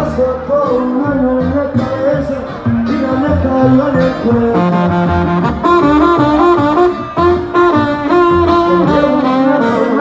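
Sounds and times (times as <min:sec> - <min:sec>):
trumpets playing a melody: 0:04.3 - 0:10.0.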